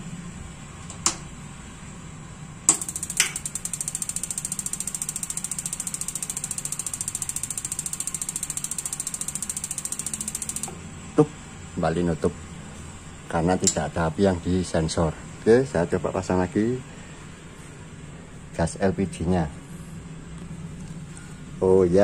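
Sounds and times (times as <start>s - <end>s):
igniter sparking rapid ticking: 2.7s - 10.7s
gas valve sharp clicks: 2.7s - 10.8s.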